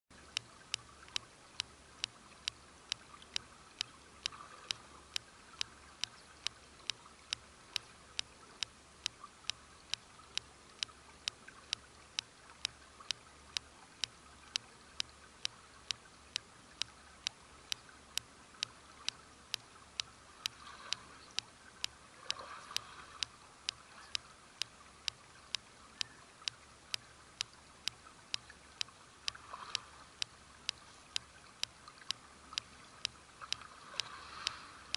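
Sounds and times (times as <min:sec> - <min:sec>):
faint steady hiss: 0:00.1 - 0:34.9
sharp regular clicks: 0:00.1 - 0:34.9.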